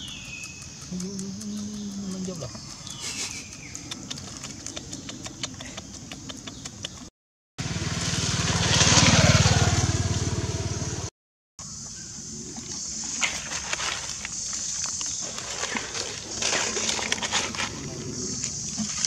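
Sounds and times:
light ticks and rustling: 0:00.0 - 0:07.1
motorbike engine passing: 0:07.6 - 0:11.1.

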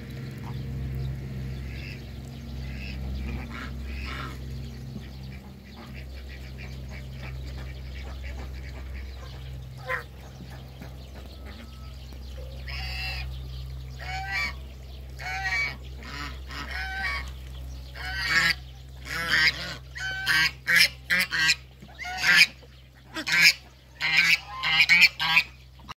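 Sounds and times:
geese honking: 0:00.0 - 0:25.9.

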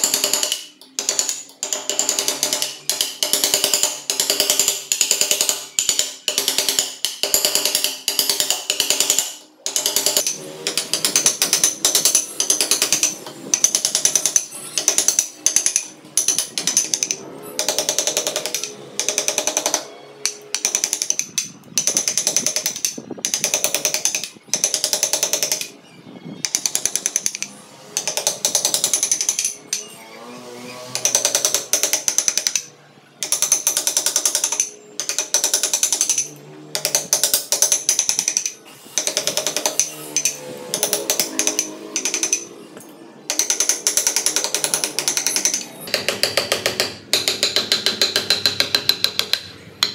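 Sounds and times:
mallet tapping chisel into wood: 0:43.3 - 0:49.9.

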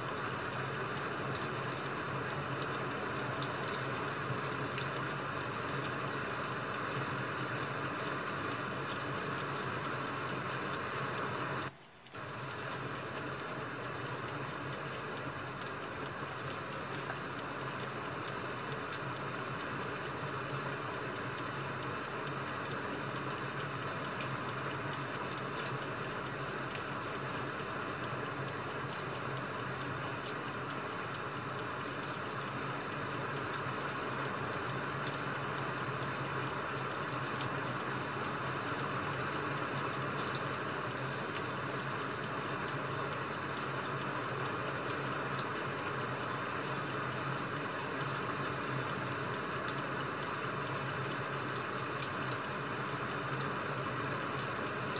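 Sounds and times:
rushing rain: 0:00.0 - 0:54.9.

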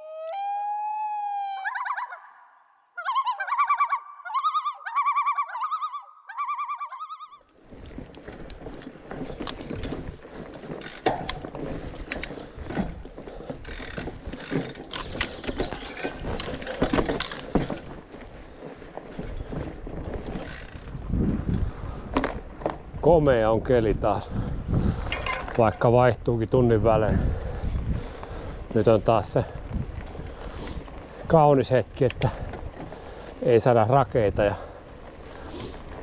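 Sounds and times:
bike tyres rumbling on trail: 0:07.5 - 0:36.0
bike ticking and rattling: 0:07.6 - 0:36.0.

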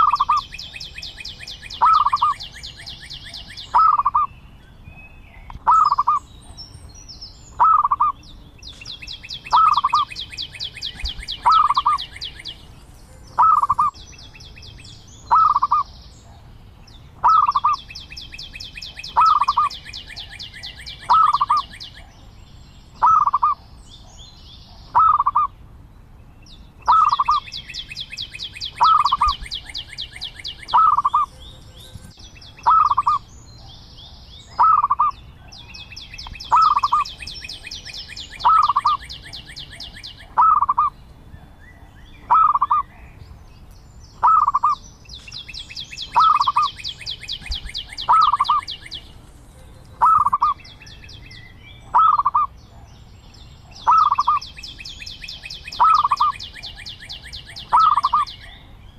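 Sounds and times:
rapid high bird trill: 0:00.0 - 0:04.3, 0:05.6 - 0:06.6, 0:07.5 - 0:08.2, 0:08.9 - 0:15.9, 0:17.2 - 0:22.1, 0:23.0 - 0:24.1, 0:26.8 - 0:33.3, 0:34.0 - 0:41.0, 0:42.3 - 0:42.9, 0:44.2 - 0:52.6, 0:53.8 - 0:58.6
dove calling: 0:00.0 - 0:22.3, 0:23.0 - 0:25.6, 0:26.8 - 0:43.2, 0:44.2 - 0:52.9, 0:53.6 - 0:58.7.

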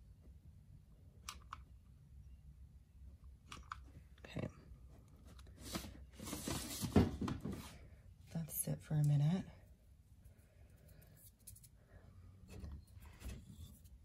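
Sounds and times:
low room hum: 0:00.0 - 0:14.0
rustling handling noise: 0:05.1 - 0:07.9.

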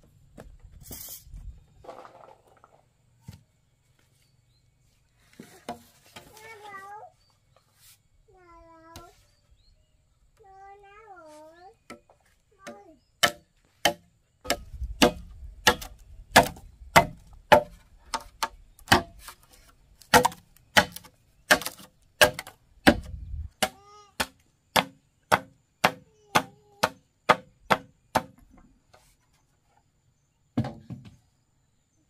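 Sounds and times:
machete chopping bamboo: 0:12.7 - 0:19.4, 0:20.0 - 0:28.4.

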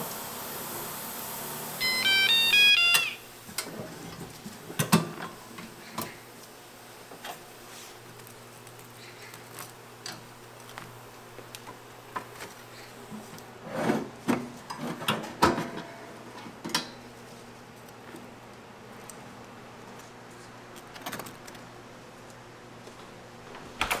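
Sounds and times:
low appliance hum: 0:00.0 - 0:24.0
kitchen clicks and knocks: 0:03.6 - 0:06.2.

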